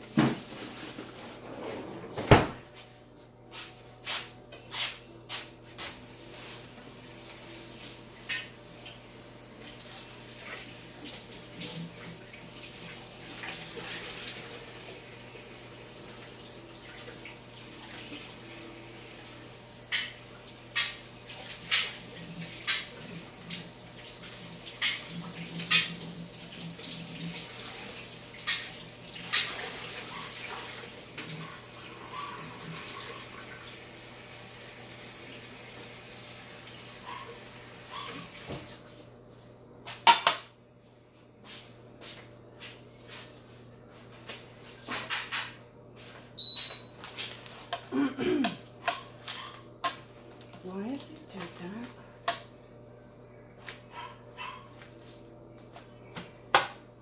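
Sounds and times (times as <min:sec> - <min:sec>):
water running from a tap: 0:06.0 - 0:38.8.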